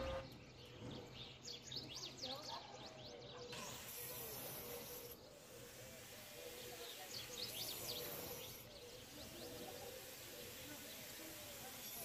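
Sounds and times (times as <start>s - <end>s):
faint bird chirps: 0.0s - 12.0s.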